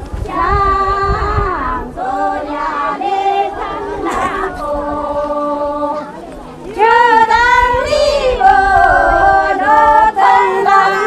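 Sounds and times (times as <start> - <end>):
group singing folk song: 0.0 - 11.0.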